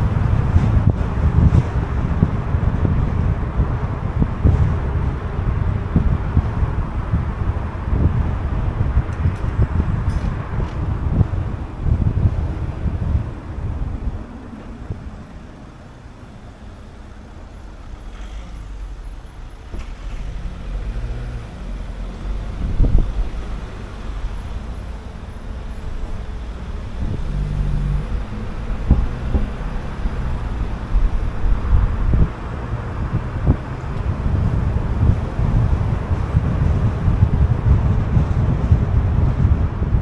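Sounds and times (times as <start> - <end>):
car engine hum: 0.0 - 40.0
road rumble: 0.0 - 40.0.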